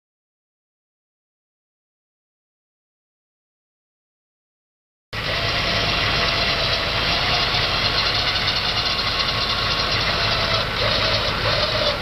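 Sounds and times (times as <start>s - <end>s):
engine running with clatter: 5.2s - 12.0s.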